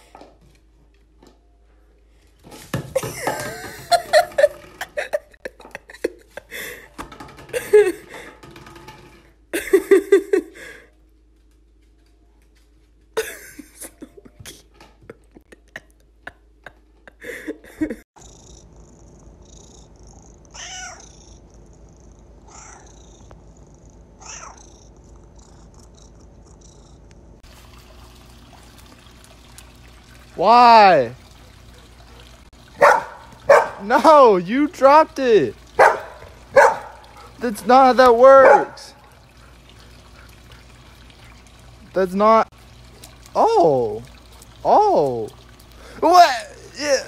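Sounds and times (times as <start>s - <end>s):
container knocking on wooden floor: 6.9s - 9.4s
cat meowing softly: 20.5s - 21.2s, 24.2s - 24.8s.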